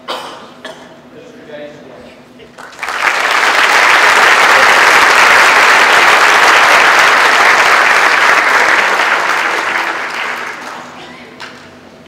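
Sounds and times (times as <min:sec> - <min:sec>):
audience applauding: 0:02.6 - 0:11.7.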